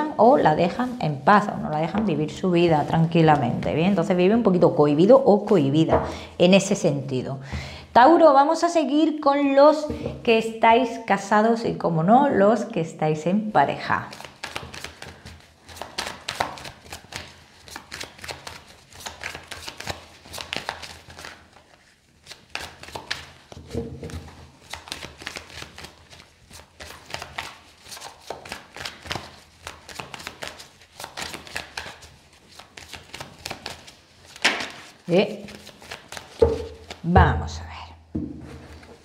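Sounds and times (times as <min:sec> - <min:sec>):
playing cards being shuffled: 0:14.1 - 0:37.1.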